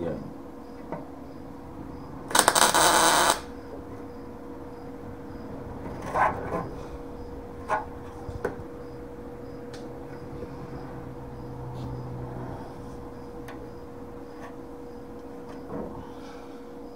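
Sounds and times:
faint steady hum: 0:00.0 - 0:16.9
welder crackling: 0:02.3 - 0:03.6.

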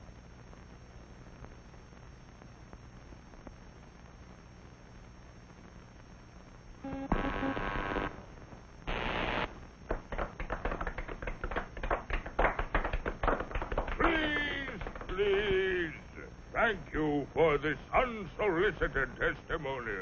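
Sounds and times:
film soundtrack hiss: 0:00.0 - 0:20.0
loud buzzing tone: 0:06.8 - 0:09.6
cartoon clicks and taps: 0:09.9 - 0:15.8.

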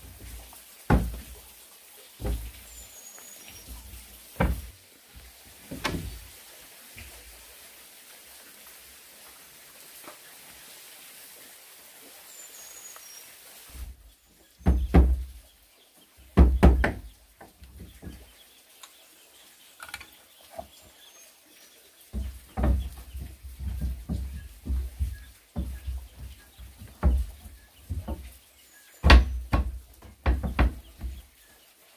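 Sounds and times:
heavy wooden knocks: 0:00.9 - 0:01.4, 0:02.2 - 0:02.6, 0:04.4 - 0:04.7, 0:05.7 - 0:06.2, 0:14.6 - 0:15.4, 0:16.3 - 0:18.2, 0:22.2 - 0:28.4, 0:29.0 - 0:31.3
faint bird chirps: 0:12.2 - 0:13.4.

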